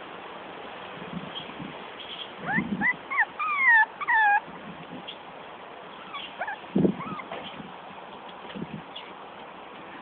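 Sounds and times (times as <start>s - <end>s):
puppies whining: 2.4s - 4.6s, 5.9s - 7.7s.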